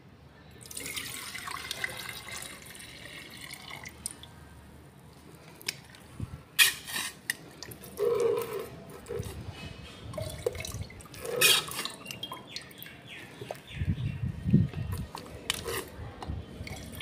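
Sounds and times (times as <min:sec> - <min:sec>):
liquid dripping: 0:10.1 - 0:13.8.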